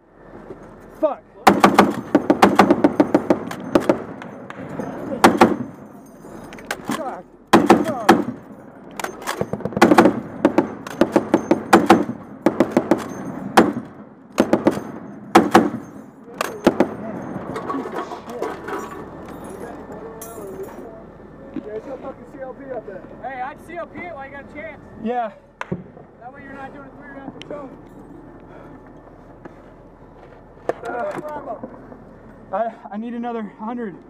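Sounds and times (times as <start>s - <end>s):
heavy machine gun firing bursts: 1.5s - 4.2s, 5.2s - 5.8s, 7.5s - 8.4s, 9.4s - 16.0s.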